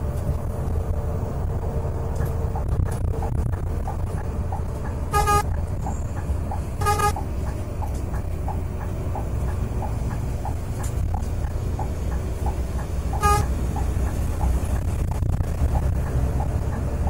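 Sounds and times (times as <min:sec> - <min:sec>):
engine and road drone in cabin: 0:00.0 - 0:17.0
coach horn blasts: 0:05.1 - 0:05.5, 0:06.8 - 0:07.2, 0:13.2 - 0:13.6.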